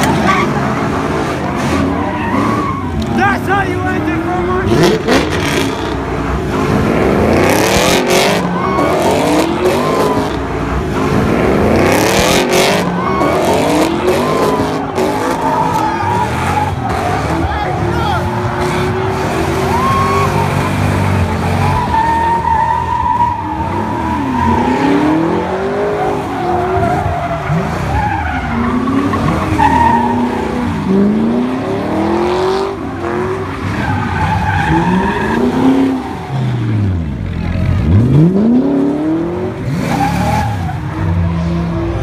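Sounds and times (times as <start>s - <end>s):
tyres squealing on pavement: 0.0s - 5.7s, 7.9s - 10.6s, 12.0s - 31.3s, 32.7s - 36.7s
car engines revving: 0.0s - 42.0s.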